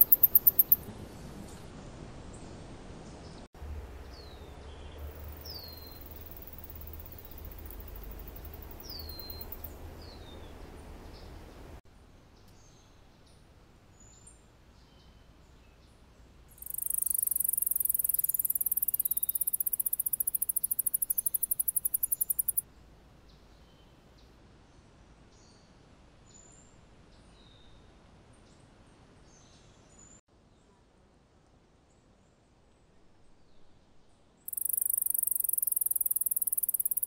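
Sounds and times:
mouse singing high-pitched trill: 0:00.0 - 0:00.8, 0:16.6 - 0:22.6, 0:34.5 - 0:37.0.

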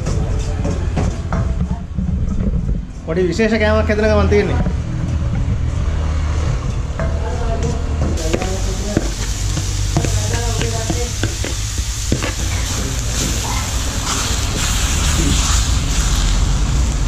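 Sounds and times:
low steady rumble: 0:00.0 - 0:14.0
metal ladle scraping iron pan: 0:08.2 - 0:13.5
vegetables sizzling in a wok: 0:08.2 - 0:17.0.

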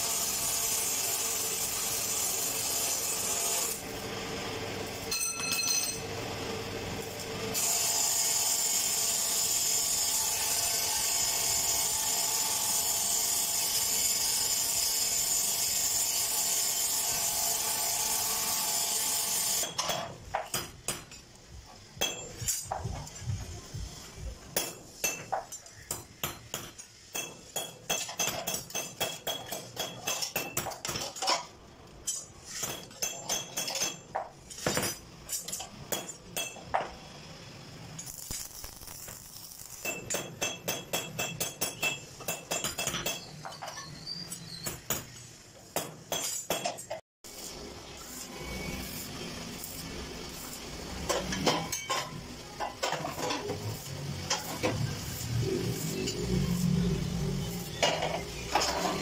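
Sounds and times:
welding arc sizzling: 0:00.0 - 0:19.8, 0:31.9 - 0:43.0, 0:47.3 - 0:59.0.

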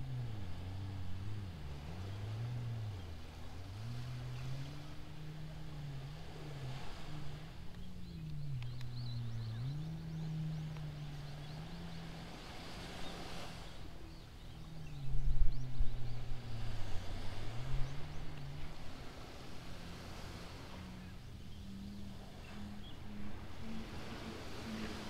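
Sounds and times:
distant motor engine humming: 0:00.0 - 0:25.0
wind buffeting microphone: 0:00.0 - 0:25.0
faint bird chirps: 0:07.6 - 0:18.8.

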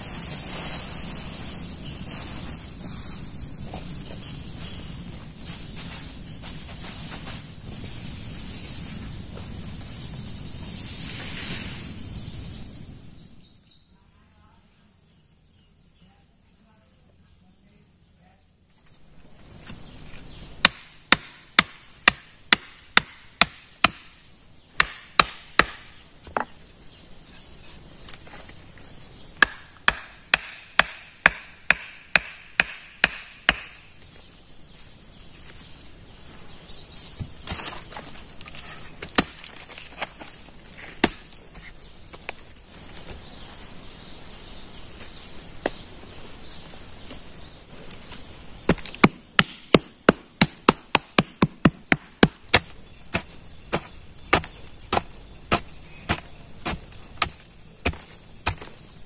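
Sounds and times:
axe chopping wood: 0:20.6 - 0:26.5, 0:29.4 - 0:33.8, 0:40.9 - 0:41.4, 0:48.7 - 0:58.8.

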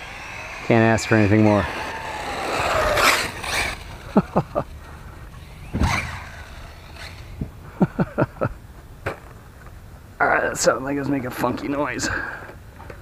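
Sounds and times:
electric motor chirps: 0:00.0 - 0:04.3
rush of noise: 0:00.0 - 0:07.8.

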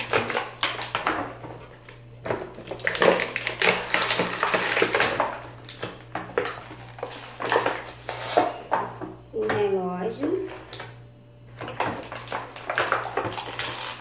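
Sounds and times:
plastic packaging crinkling: 0:00.0 - 0:08.8, 0:11.5 - 0:14.0.

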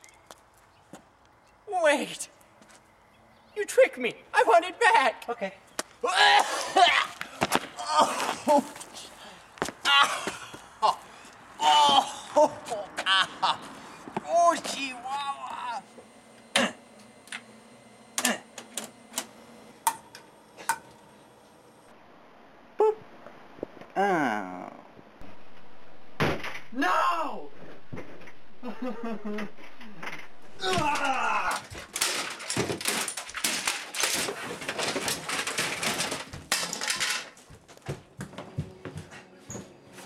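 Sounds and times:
hard plastic clattering and knocking: 0:31.6 - 0:37.4.

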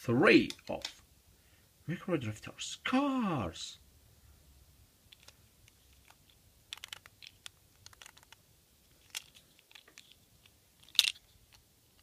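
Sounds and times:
plastic toy cars clicking: 0:05.1 - 0:08.4, 0:09.0 - 0:12.0.

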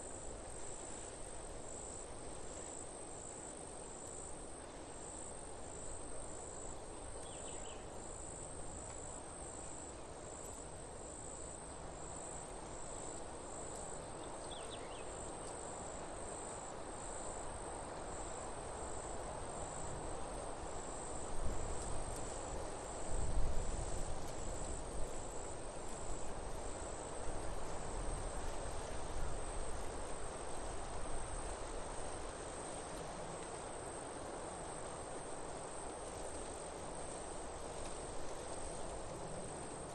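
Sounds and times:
background hiss: 0:00.0 - 0:39.9
insect trill: 0:11.2 - 0:17.4.

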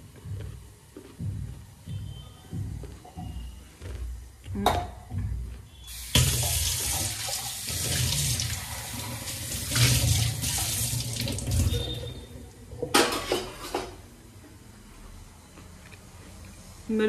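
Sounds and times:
tap water running into sink: 0:05.9 - 0:12.3.

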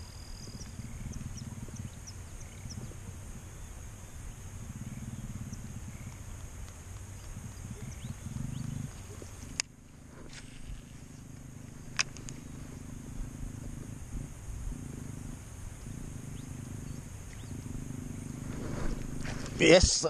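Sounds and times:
fishing reel gear hum: 0:07.0 - 0:19.8.

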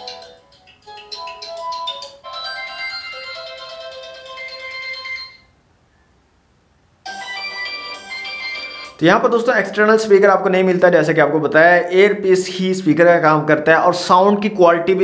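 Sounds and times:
phone ringtone melodies: 0:00.0 - 0:05.5, 0:07.0 - 0:09.5.

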